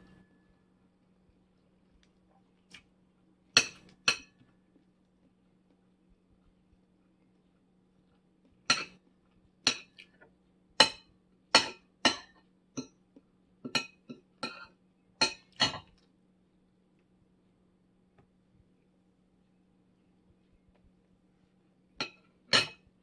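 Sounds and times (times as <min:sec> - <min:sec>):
cutlery clinking against a plate: 0:03.6 - 0:04.5, 0:08.7 - 0:09.0, 0:09.7 - 0:10.1, 0:10.8 - 0:13.0, 0:13.7 - 0:16.0, 0:22.0 - 0:22.9.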